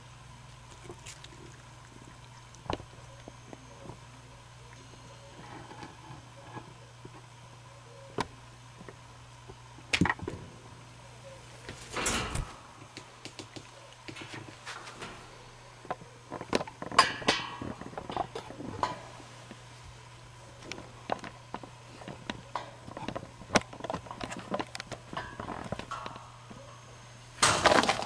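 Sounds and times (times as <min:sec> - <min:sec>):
rattling clatter of wire pen: 0:11.7 - 0:12.6.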